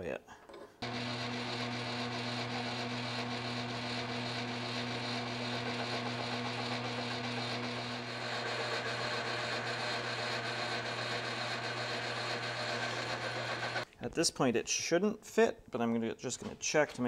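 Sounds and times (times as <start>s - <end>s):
metal lathe humming: 0.8s - 13.8s.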